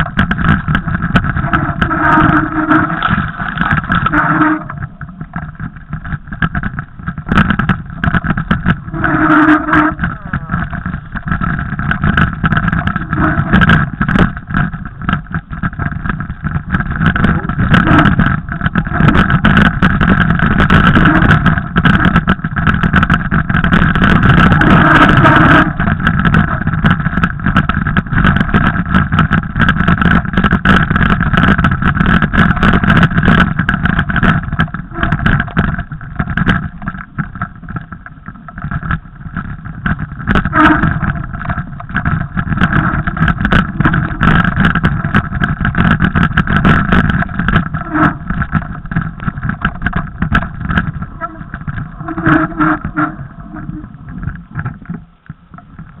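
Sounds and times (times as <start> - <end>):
bike rattling and knocking: 0.0 - 56.0
mountain bike rumbling on trail: 0.0 - 56.0.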